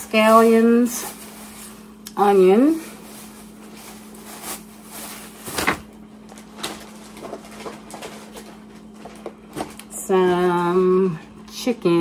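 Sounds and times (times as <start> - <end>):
plastic bag rustling: 0.0 - 10.8
steady hum: 0.0 - 12.0
packages being handled: 0.1 - 2.0, 2.6 - 9.9.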